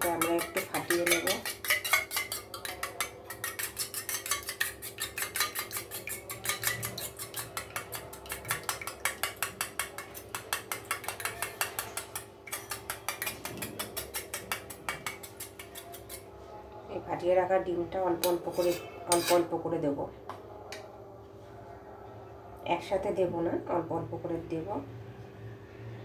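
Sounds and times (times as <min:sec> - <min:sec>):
spoon beating egg in metal bowl: 0:00.0 - 0:16.3, 0:18.2 - 0:19.5.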